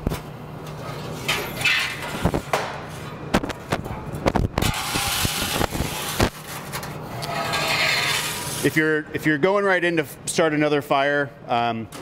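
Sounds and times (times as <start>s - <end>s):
metal shovel scraping stone: 7.2s - 8.7s.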